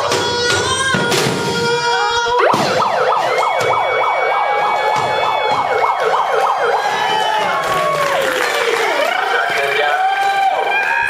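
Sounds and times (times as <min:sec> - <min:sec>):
siren-like falling whoops: 0:00.4 - 0:08.4.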